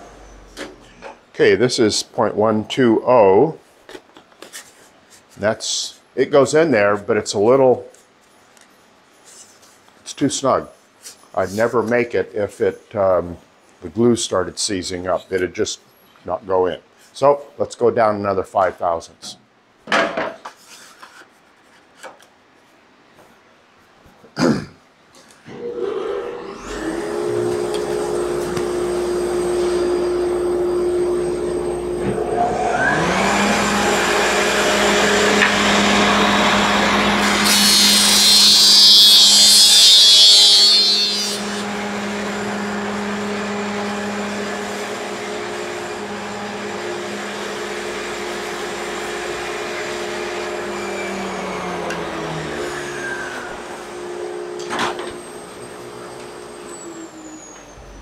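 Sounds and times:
dust collector running: 25.5s - 38.4s, 41.4s - 58.0s
planer motor whine: 25.5s - 38.9s, 40.6s - 58.0s
planer cutting wood: 25.5s - 58.0s.

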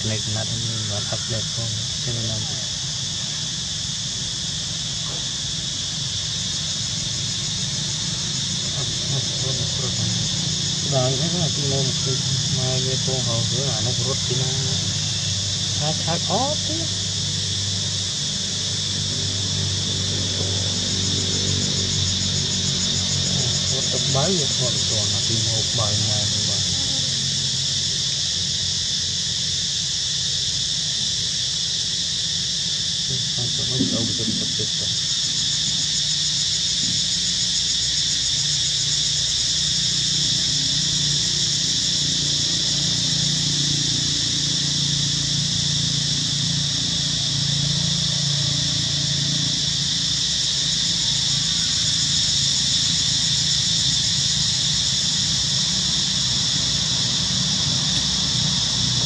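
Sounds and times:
insect chorus: 0.0s - 59.0s
low steady hum: 33.1s - 34.9s.

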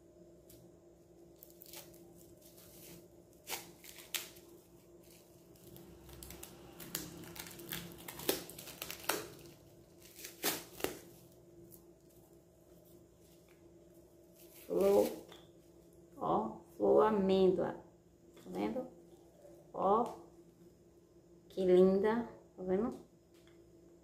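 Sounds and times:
plastic wrap crinkling and tearing: 1.3s - 13.6s, 14.2s - 15.4s.

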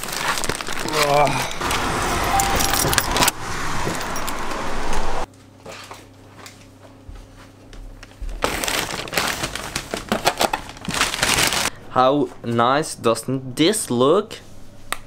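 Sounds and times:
plastic bag crinkling: 0.0s - 1.9s, 8.4s - 11.7s
keys and door lock rattling: 2.2s - 4.4s
room hum: 4.9s - 15.0s
bag rustling: 8.4s - 11.7s.

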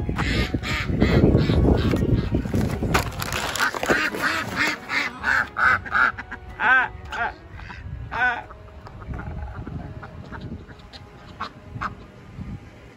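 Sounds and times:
ducks quacking: 0.0s - 12.3s
rustling and handling noise: 1.9s - 4.9s.

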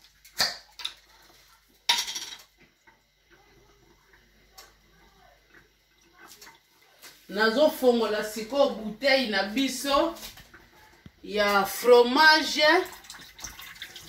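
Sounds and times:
utensils and dishes clinking: 1.9s - 2.5s.

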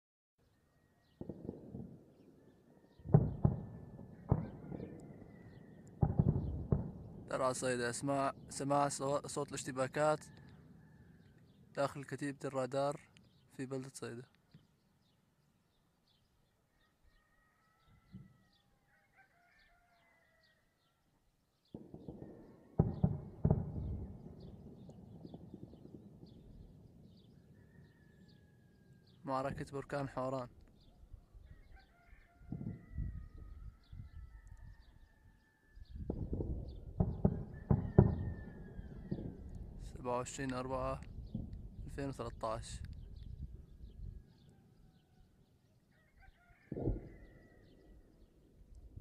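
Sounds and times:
distant gunfire and explosions: 1.1s - 9.4s, 21.7s - 27.9s, 36.0s - 42.2s, 46.7s - 47.8s
rooster crowing: 3.8s - 5.9s, 16.7s - 20.9s, 27.5s - 29.0s, 31.5s - 35.9s, 37.3s - 39.5s, 45.9s - 47.9s.

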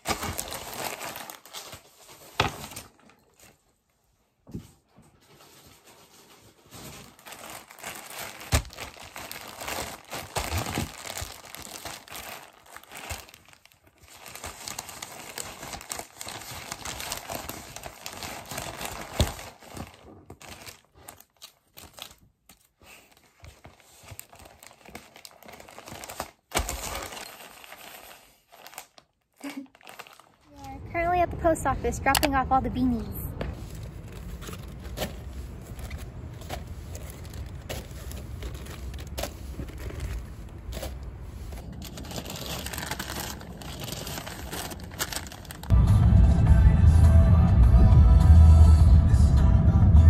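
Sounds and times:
plastic mailer crinkling: 0.0s - 3.7s, 5.4s - 30.7s, 33.5s - 45.7s.

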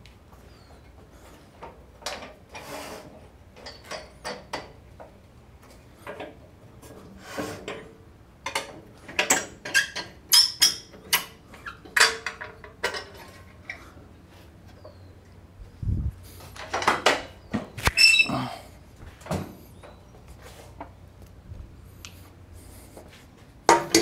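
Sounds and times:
metal clanks and rattles: 7.6s - 13.8s, 23.6s - 24.0s.

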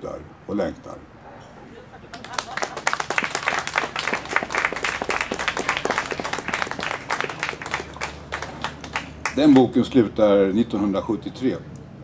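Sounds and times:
small audience applauding: 2.1s - 9.7s.

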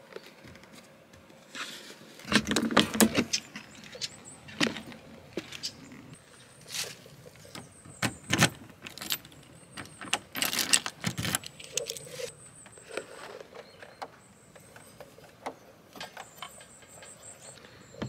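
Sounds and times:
clicks and knocks of handling: 6.7s - 17.7s.

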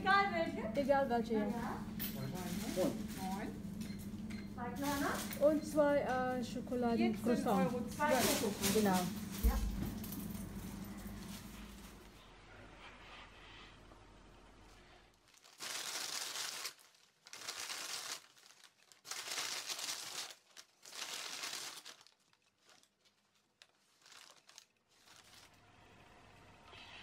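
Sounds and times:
paper bag crinkling: 2.2s - 3.5s, 4.8s - 5.6s, 7.4s - 10.4s, 15.2s - 25.6s.

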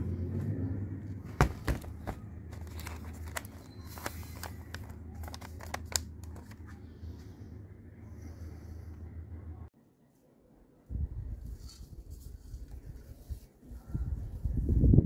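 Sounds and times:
steady low hum: 0.0s - 9.7s
paper crinkling: 1.4s - 6.8s.

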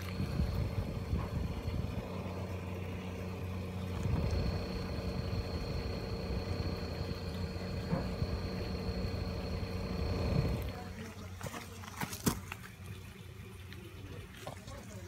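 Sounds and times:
thin high whine: 0.0s - 10.9s
exhaust fans humming: 0.0s - 11.8s.

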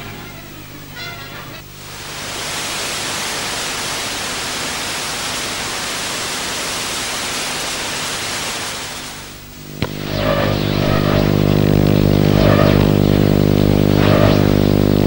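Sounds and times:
television static hiss: 0.0s - 15.0s.

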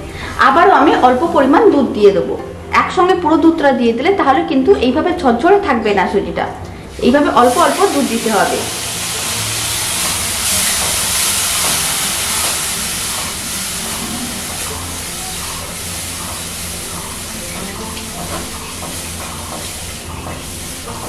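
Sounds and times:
milk sizzling in a pan: 7.0s - 21.0s.

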